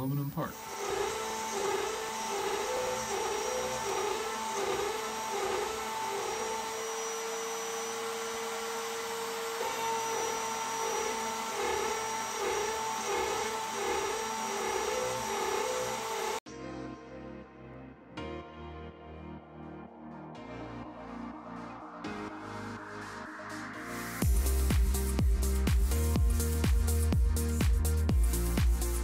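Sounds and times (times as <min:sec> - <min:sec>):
router cutting metal plate: 0:00.4 - 0:16.4.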